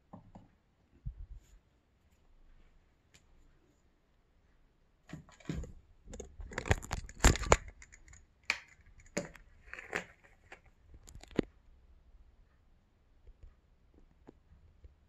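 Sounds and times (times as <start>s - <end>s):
phone handling rubbing and rustling: 5.1s - 11.5s.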